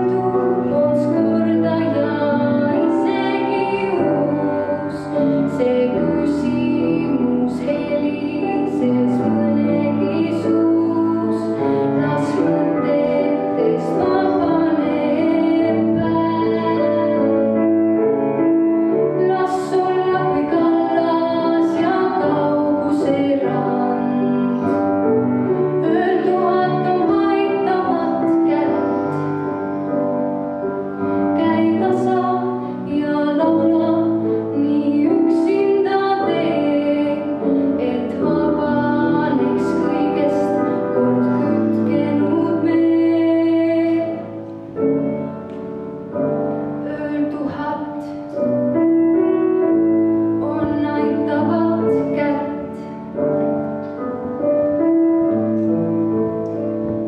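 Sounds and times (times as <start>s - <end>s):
girl singing into a microphone: 0.0s - 17.5s, 19.1s - 24.8s, 25.8s - 29.8s, 31.3s - 44.4s, 46.8s - 48.5s, 50.3s - 53.3s
piano accompaniment: 0.0s - 57.0s.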